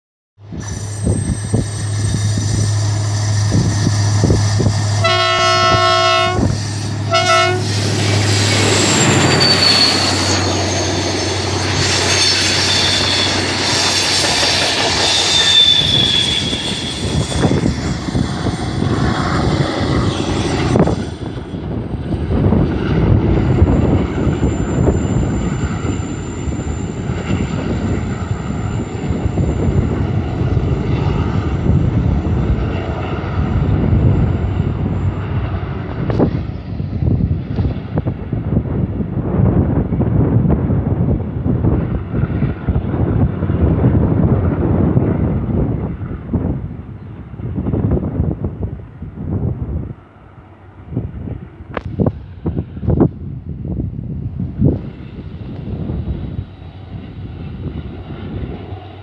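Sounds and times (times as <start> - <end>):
train wheels squealing: 0.5 - 5.1, 6.4 - 42.6, 54.6 - 59.0
locomotive horn blasts: 5.0 - 7.8
wheels clattering on rails: 8.0 - 16.1.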